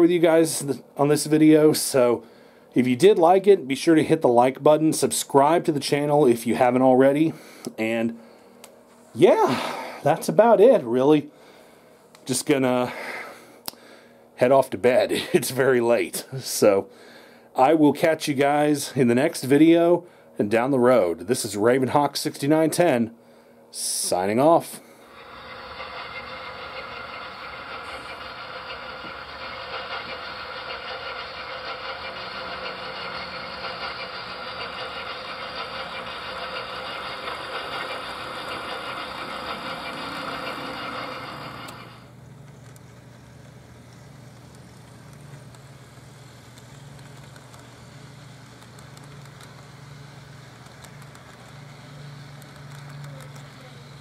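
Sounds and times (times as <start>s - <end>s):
model locomotive engine sound: 0.0s - 7.2s, 23.8s - 54.0s
model train running on track: 25.0s - 42.1s, 43.2s - 54.0s.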